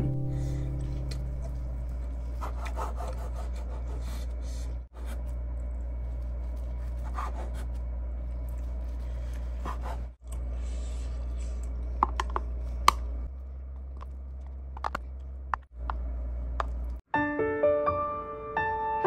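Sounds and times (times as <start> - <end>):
low hum: 0.0 - 17.0.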